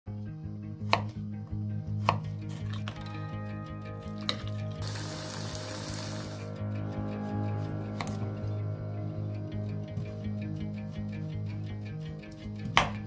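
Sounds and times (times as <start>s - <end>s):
background music with bass line: 0.1s - 13.0s
knife chopping on wooden board: 0.9s - 1.1s, 2.0s - 2.3s.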